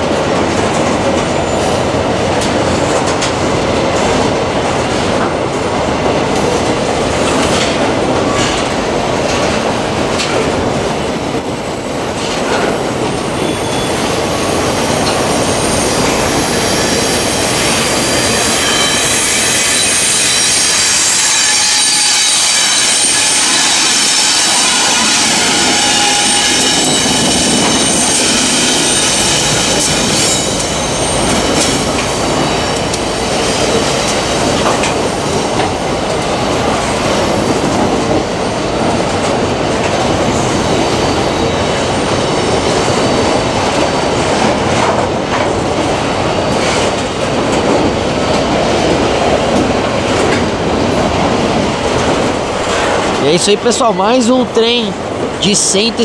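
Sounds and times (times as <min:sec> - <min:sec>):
wheels rumbling on rail: 0:00.0 - 0:56.0
train wheels squealing: 0:10.9 - 0:39.0, 0:40.0 - 0:43.5.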